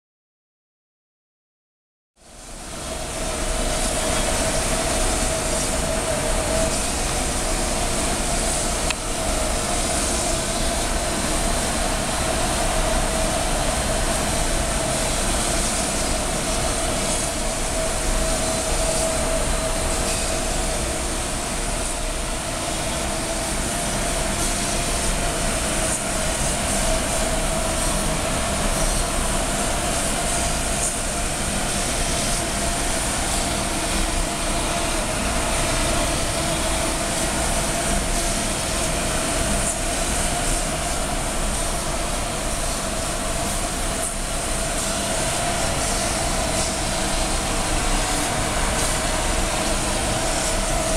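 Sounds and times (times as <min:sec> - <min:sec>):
cutting hiss: 0:02.5 - 0:50.9.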